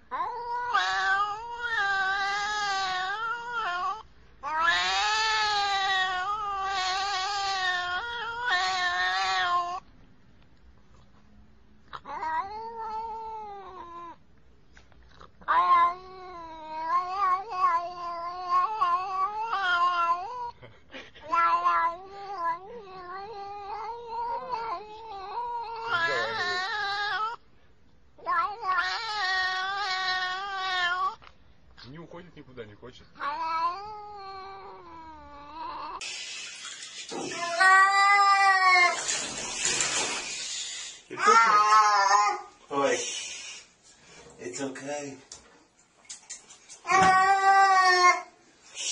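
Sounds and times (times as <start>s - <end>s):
cat yowling: 0.1s - 9.8s, 12.0s - 14.2s, 15.4s - 20.6s, 21.2s - 27.4s, 28.2s - 31.2s, 33.2s - 36.0s, 37.1s - 39.9s, 41.0s - 42.6s, 46.8s - 48.4s.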